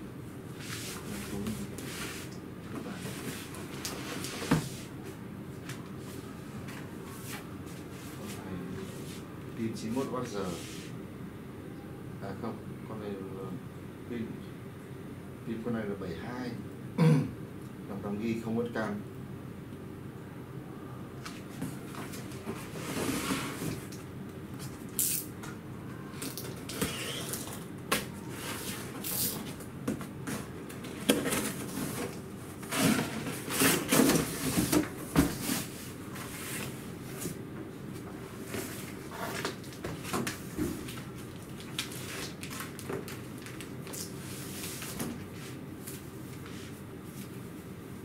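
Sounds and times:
cardboard scraping and rustling: 0:21.6 - 0:23.9, 0:30.2 - 0:37.4.

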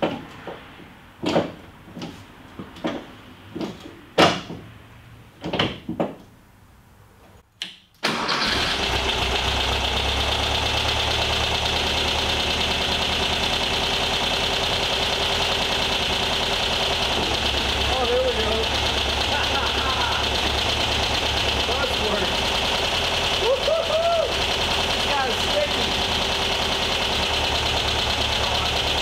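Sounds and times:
knocks and clunks: 0:00.0 - 0:04.8, 0:05.4 - 0:06.3
car engine starting and idling: 0:08.0 - 0:29.0.

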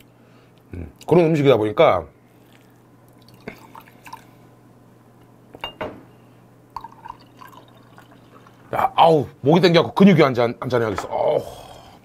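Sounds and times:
beer poured into glass: 0:03.2 - 0:04.3, 0:06.7 - 0:08.8.

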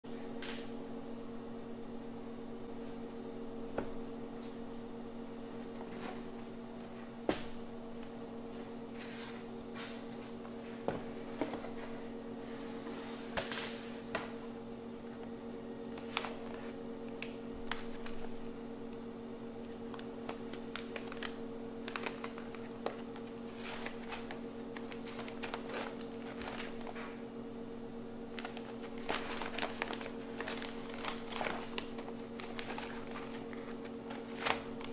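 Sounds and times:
steady low hum: 0:00.0 - 0:34.9
paper bag rustling: 0:19.8 - 0:27.2, 0:28.3 - 0:34.9.

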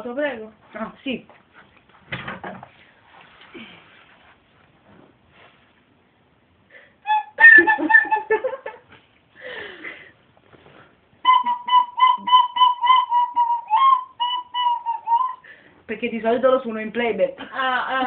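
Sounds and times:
recorder playing: 0:07.1 - 0:08.3, 0:11.2 - 0:15.4.

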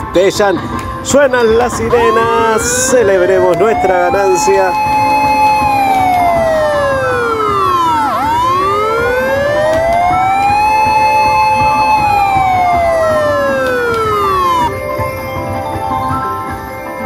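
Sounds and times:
slot machine wailing siren: 0:01.9 - 0:14.8
steady electronic tones: 0:01.9 - 0:14.8.

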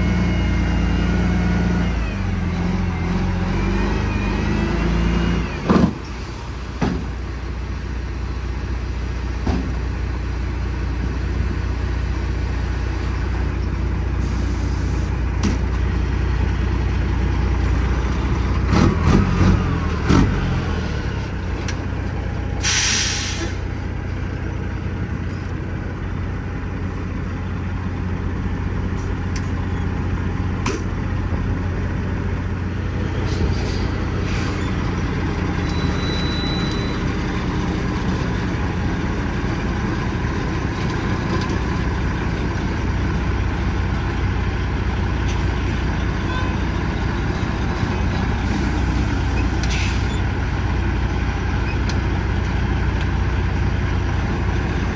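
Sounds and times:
diesel truck engine idling: 0:05.9 - 0:18.7, 0:20.6 - 0:54.9
air brakes hiss: 0:14.2 - 0:15.2, 0:22.6 - 0:23.7, 0:33.2 - 0:34.8, 0:49.6 - 0:50.2.

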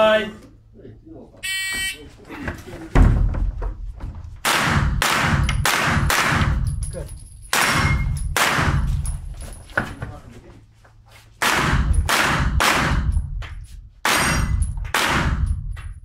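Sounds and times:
carbine shots echoing indoors: 0:04.4 - 0:06.8, 0:07.5 - 0:08.9, 0:11.4 - 0:13.3, 0:14.0 - 0:15.8.

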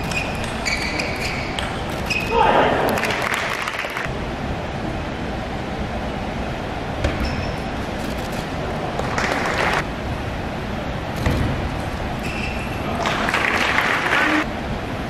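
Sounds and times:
short bursts of noise: 0:00.0 - 0:04.1, 0:07.8 - 0:09.9
steady hall hum: 0:00.0 - 0:15.0.

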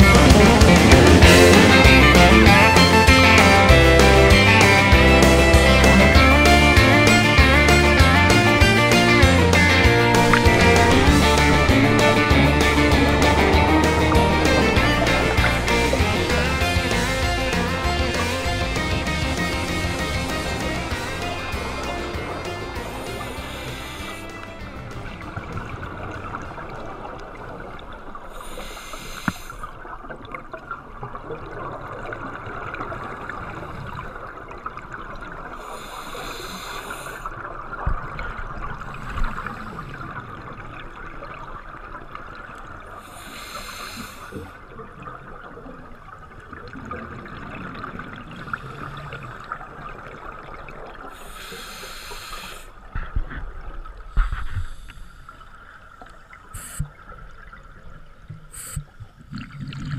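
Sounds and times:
low knocks: 0:00.0 - 0:23.0
exhaled bubbles rushing: 0:00.0 - 0:51.7, 0:55.6 - 0:59.9
regulator breathing hiss: 0:22.7 - 0:24.4, 0:28.3 - 0:29.7, 0:35.6 - 0:37.4, 0:38.8 - 0:40.2, 0:43.0 - 0:44.6, 0:48.3 - 0:49.6, 0:51.1 - 0:52.9, 0:54.1 - 0:55.8, 0:56.5 - 0:57.0, 0:58.4 - 0:59.0.

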